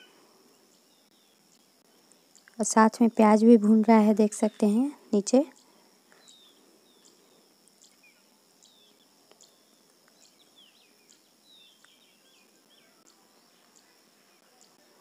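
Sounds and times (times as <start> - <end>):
faint background hiss: 0.0 - 15.0
faint ticks: 1.5 - 2.6, 5.5 - 8.0, 8.6 - 10.4, 11.1 - 14.9.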